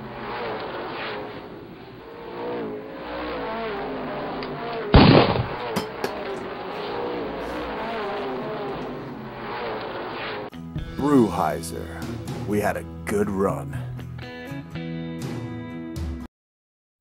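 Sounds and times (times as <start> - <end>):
race car engines: 0.0 - 10.5
loud sudden noise: 4.9 - 10.5.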